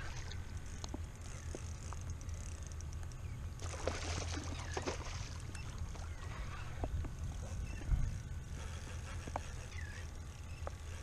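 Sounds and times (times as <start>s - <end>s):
fish thrashing and splashing: 3.6s - 6.1s.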